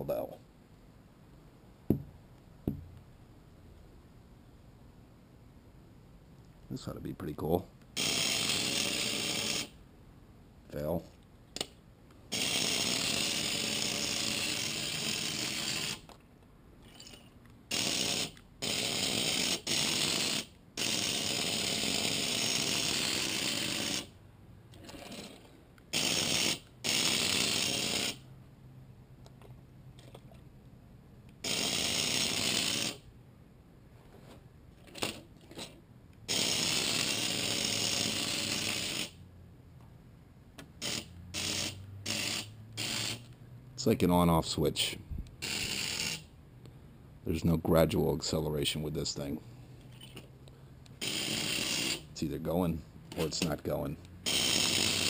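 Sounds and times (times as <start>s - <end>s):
toy car electric motor whirring: 8.0s - 9.8s, 12.3s - 16.1s, 17.7s - 24.2s, 24.8s - 28.2s, 31.4s - 33.0s, 35.0s - 39.2s, 40.8s - 43.4s, 45.4s - 46.3s, 51.0s - 52.2s, 54.2s - 55.0s.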